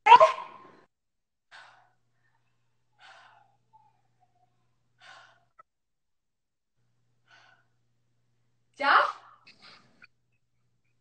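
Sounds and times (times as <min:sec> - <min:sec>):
woman breathing hard: 0:01.5 - 0:05.7, 0:07.2 - 0:07.8.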